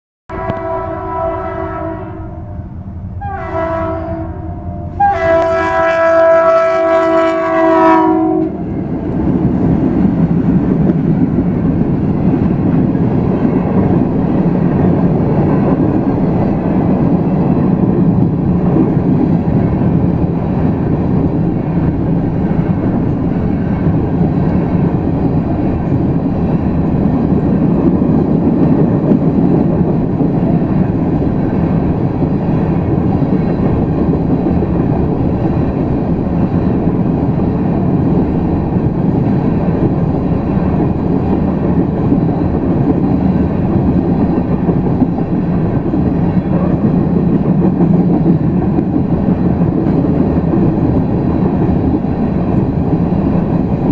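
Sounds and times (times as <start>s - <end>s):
locomotive air horn blasts: 0.3s - 8.6s
train cars rumbling past: 0.3s - 53.9s.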